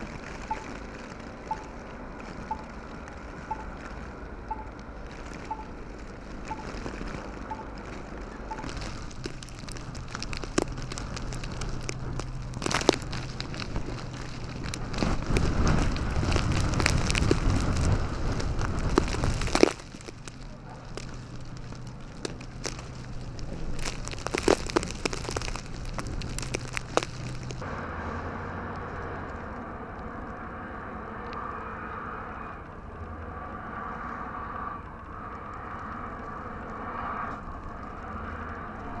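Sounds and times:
blizzard noise: 0.0 - 39.0
car engine rumbling: 0.0 - 39.0
snow ticking in wind: 0.0 - 39.0
car engine revving: 27.6 - 39.0.

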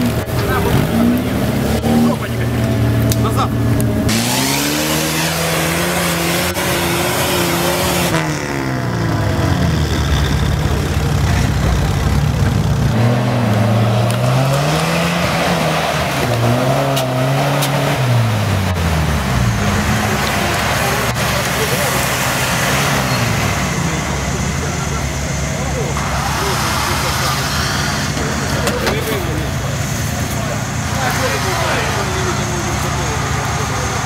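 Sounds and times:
off-road vehicle engine revving: 0.0 - 34.0.

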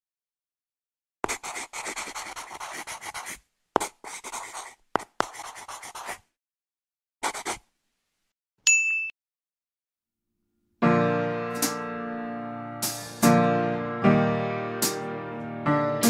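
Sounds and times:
pencil scratching on paper: 1.2 - 6.3, 7.2 - 7.7
short high chime: 8.7 - 9.2.

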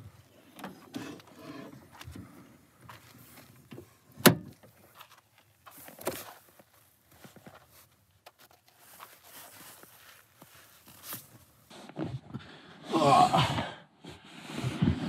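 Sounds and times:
shoes scuffing on dirt: 4.8 - 11.7.

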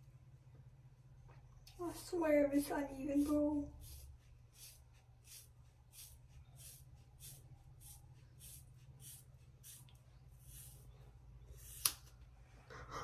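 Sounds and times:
scissors snipping wet hair: 11.7 - 12.1.

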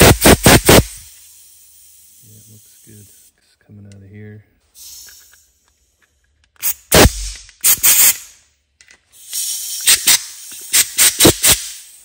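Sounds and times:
air blow gun blasts: 0.0 - 2.2, 6.6 - 8.2, 9.2 - 12.0.

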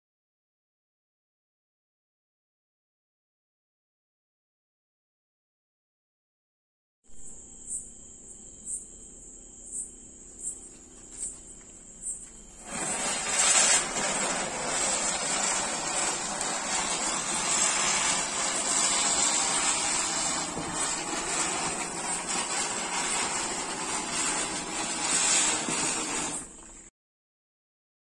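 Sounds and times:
ground spinner firework hissing: 10.7 - 26.9.

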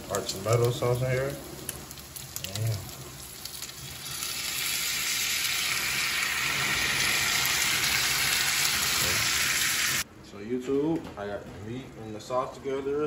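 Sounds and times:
sauce sizzling in a frying pan: 0.0 - 10.0.

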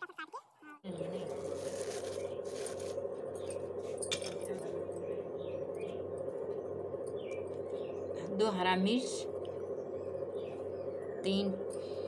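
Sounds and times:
steady background hum: 0.1 - 12.0
small bowls clinking: 0.9 - 5.1
leaves rustling: 1.1 - 3.0.

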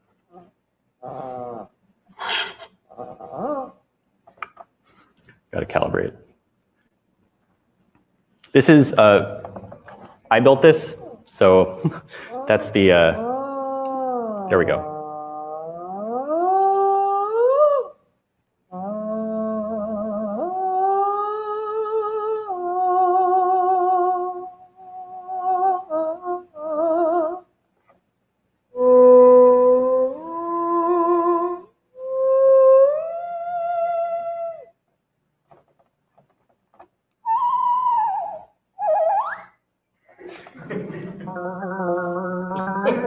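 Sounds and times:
theremin sliding notes: 12.3 - 18.0, 18.7 - 27.5, 28.7 - 34.7, 37.2 - 39.6, 41.0 - 43.0.

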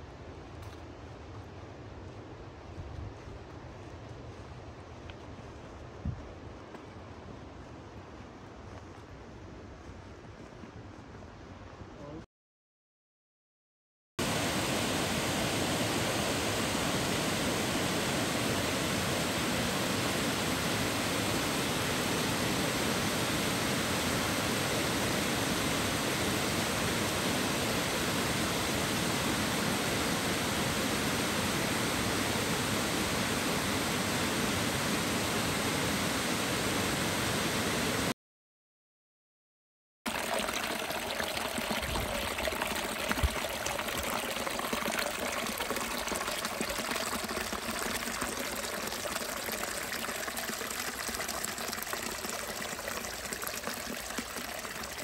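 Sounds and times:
waterfall roaring: 14.2 - 38.1
stream trickling over stones: 40.1 - 55.0.

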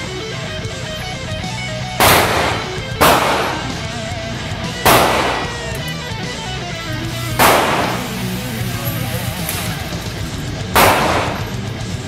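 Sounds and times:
background music: 0.0 - 12.0
gunshots ringing indoors: 2.0 - 4.2, 4.8 - 5.9, 7.2 - 9.6, 10.8 - 11.9.

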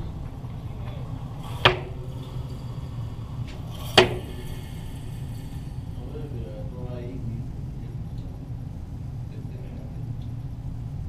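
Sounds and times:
sharp ringing knocks: 0.0 - 7.0
steady low hum: 0.0 - 11.0.

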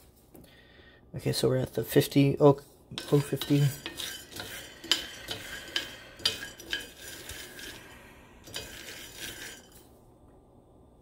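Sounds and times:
spoon stirring beans in skillet: 1.8 - 10.0.

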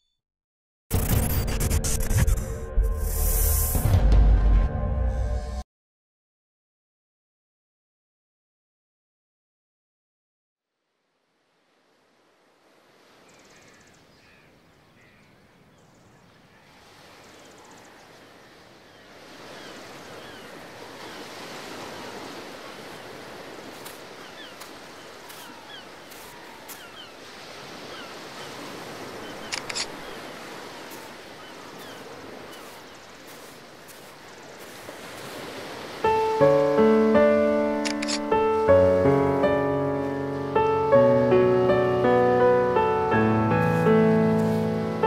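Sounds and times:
surf washing onto beach: 16.7 - 37.9
sharp clicks: 29.5 - 30.0.

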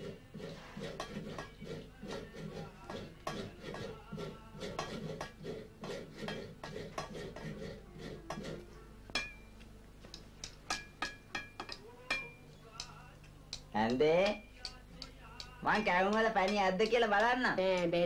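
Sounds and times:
pots and dishes clattering: 0.0 - 8.6.

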